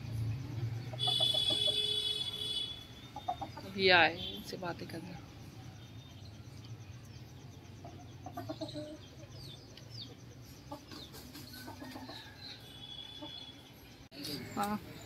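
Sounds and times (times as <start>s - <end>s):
small birds chirping: 2.7s - 15.0s
chickens clucking quietly: 3.1s - 3.8s, 7.7s - 12.6s.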